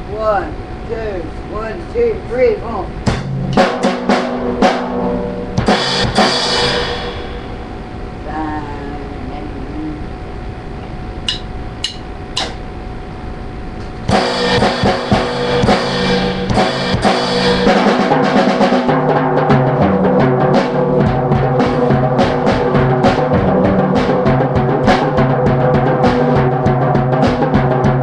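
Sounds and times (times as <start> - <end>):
drum kit playing fast: 2.3 - 7.8, 11.3 - 12.7, 14.0 - 28.0.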